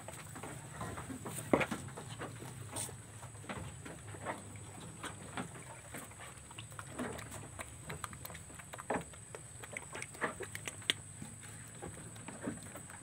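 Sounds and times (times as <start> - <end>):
knocks in wooden shed: 0.4 - 4.3.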